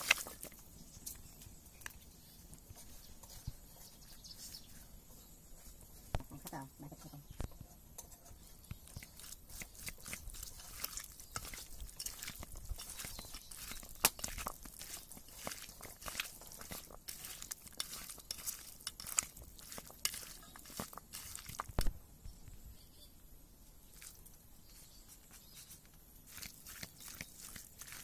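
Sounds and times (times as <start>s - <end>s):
hand squelching raw chicken: 0.0s - 0.6s, 9.0s - 21.9s, 26.3s - 28.0s.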